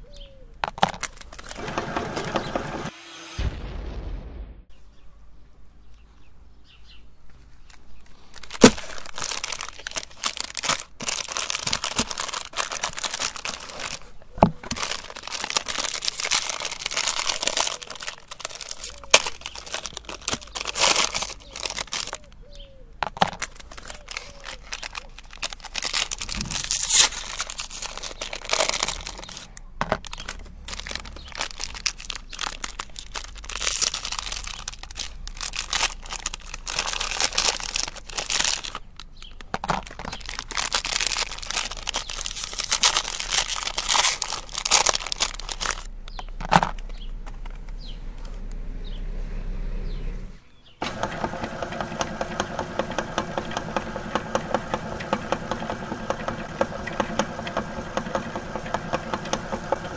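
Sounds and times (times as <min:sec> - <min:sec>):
foil wrappers crinkling and tearing: 0:00.0 - 0:01.7, 0:07.4 - 0:22.4, 0:23.0 - 0:47.7.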